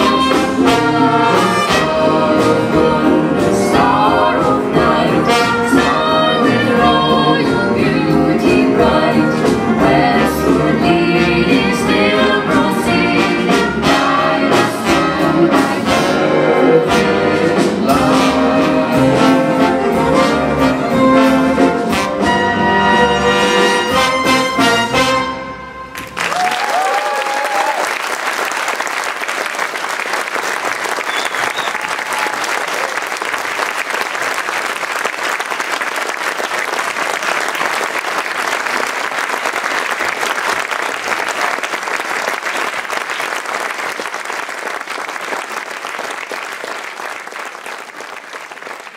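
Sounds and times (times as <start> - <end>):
big band brass chord: 13.5 - 25.9
audience applause: 26.0 - 48.9.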